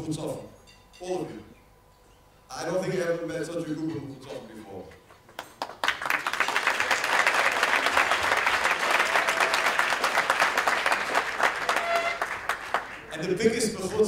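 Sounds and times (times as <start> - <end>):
audience applauding: 5.4 - 13.2.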